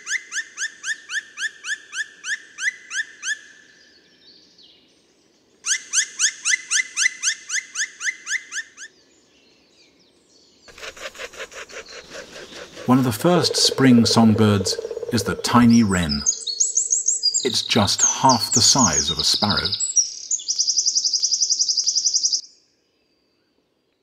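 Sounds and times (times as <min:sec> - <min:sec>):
woodpecker rattling knocks: 0:10.7 - 0:16.3
woodpecker calling: 0:10.7 - 0:20.1.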